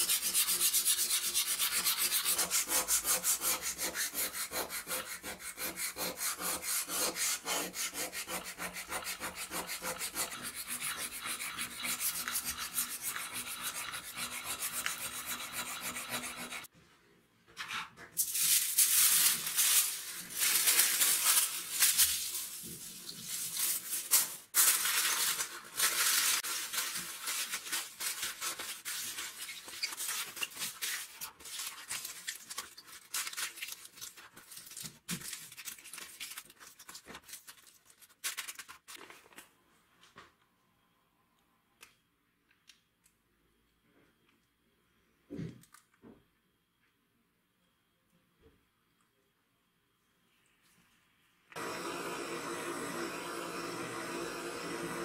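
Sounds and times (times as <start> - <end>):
aluminium foil crinkling: 18.2 - 39.5.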